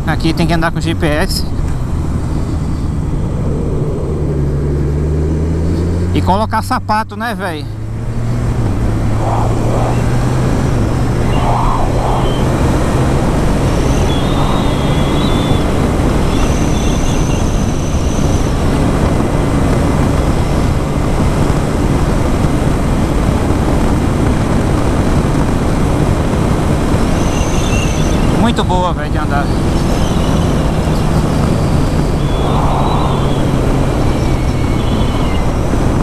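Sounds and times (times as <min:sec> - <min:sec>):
motorcycle engine cruising: 0:01.0 - 0:36.0
wind rush on microphone: 0:07.8 - 0:36.0.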